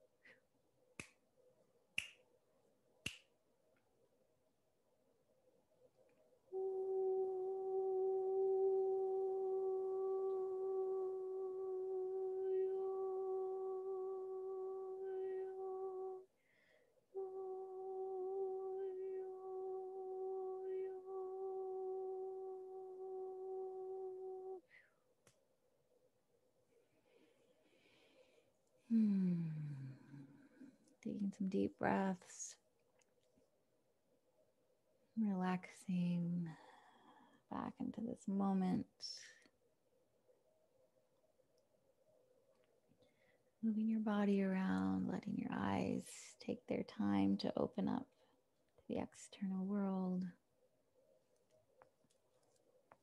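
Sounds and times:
very faint steady hum: 3.6s - 51.9s
woman humming a held note: 6.5s - 16.3s, 17.1s - 24.9s, 28.9s - 30.4s.

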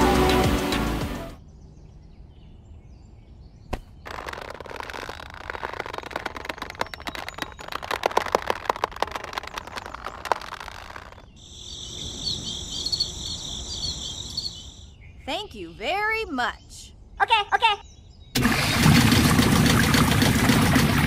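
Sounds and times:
twine rustling and crackling: 4.0s - 11.3s
crickets chirring: 4.1s - 15.0s.

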